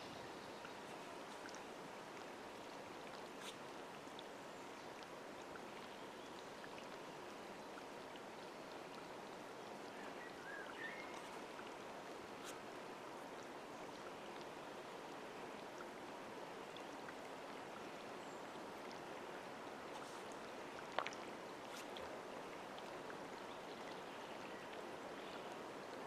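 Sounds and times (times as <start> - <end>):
waves lapping at lake edge: 8.8 - 26.0.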